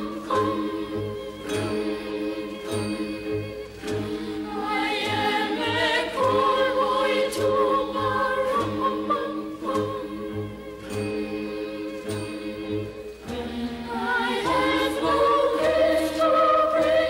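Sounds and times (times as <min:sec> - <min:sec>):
choir singing a carol: 0:00.0 - 0:17.0.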